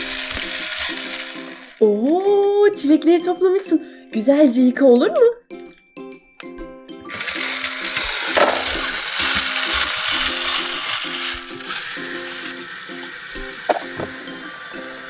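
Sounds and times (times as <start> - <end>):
toy hand mixer whirring: 0.0 - 2.6, 7.0 - 15.0
water running from faucet: 11.7 - 15.0.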